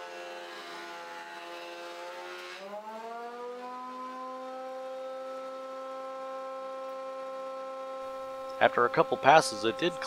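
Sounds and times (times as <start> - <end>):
planer motor whining: 0.0 - 10.0.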